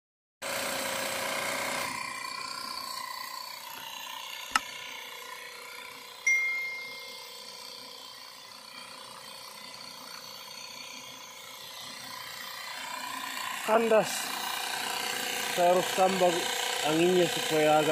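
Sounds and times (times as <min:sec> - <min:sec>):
tyre inflator motor buzzing: 0:00.4 - 0:17.9
short high chime: 0:06.3 - 0:07.2.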